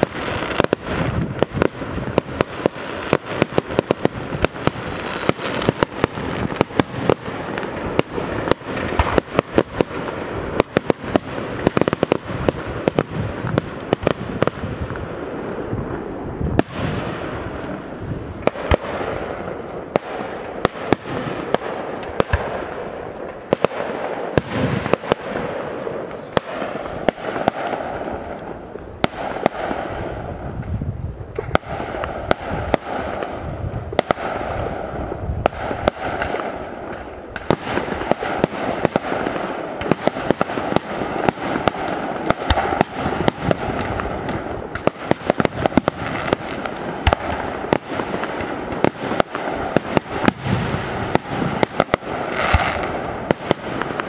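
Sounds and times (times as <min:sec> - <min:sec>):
fireworks crackling: 0:00.0 - 0:54.0
firework shells bursting: 0:19.9 - 0:30.0.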